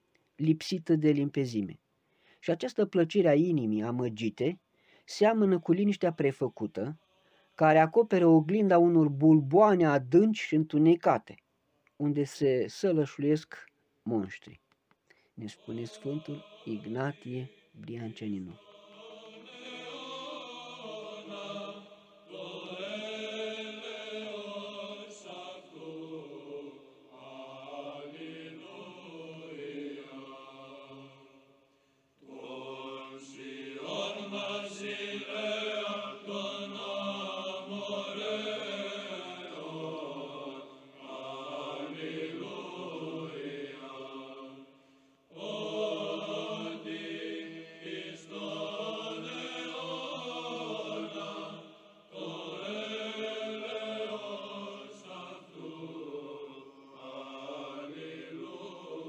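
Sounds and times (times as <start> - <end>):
choral chant: 5.2 - 9.2, 15.4 - 59.0.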